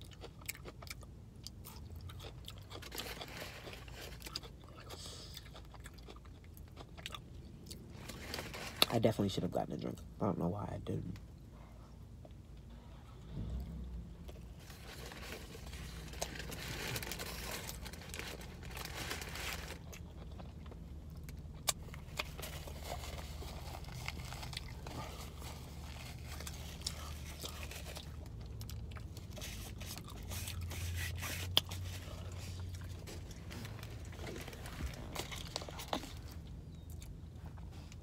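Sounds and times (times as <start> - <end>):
chewing and crunching food: 0.0 - 38.0
low steady hum: 0.0 - 38.0
paper wrapper crinkling: 14.6 - 19.9.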